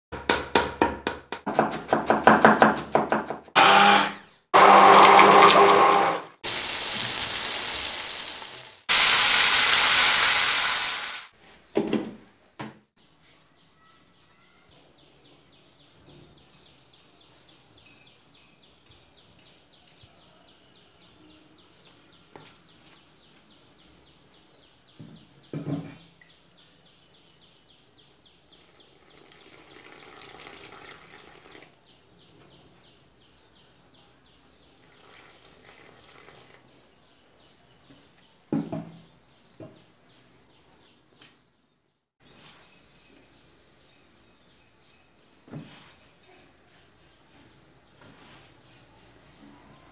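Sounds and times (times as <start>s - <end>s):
electric mixer grinder running: 3.6s - 8.2s.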